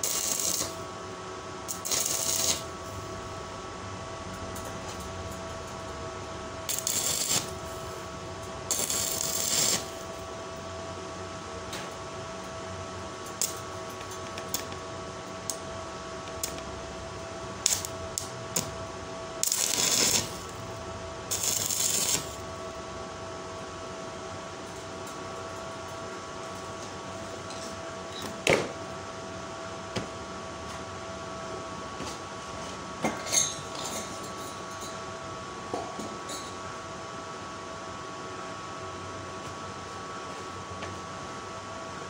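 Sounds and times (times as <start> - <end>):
arc welding crackle: 0.0 - 3.6, 5.7 - 10.3, 13.0 - 22.8
steady high whine: 0.0 - 27.6.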